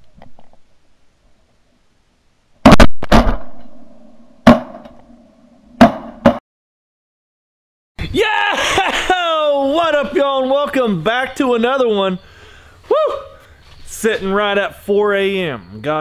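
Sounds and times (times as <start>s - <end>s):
shotgun shots echoing: 2.7s - 5.0s.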